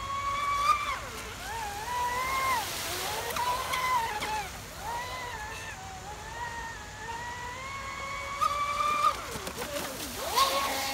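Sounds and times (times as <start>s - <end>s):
electric motor whining: 0.0s - 10.9s.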